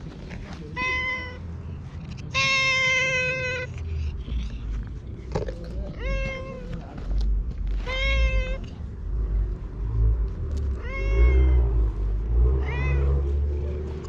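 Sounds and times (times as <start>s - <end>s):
cat meowing: 0.8s - 1.5s, 2.2s - 4.6s, 5.8s - 7.0s, 7.8s - 8.8s, 10.8s - 11.9s, 12.6s - 13.3s.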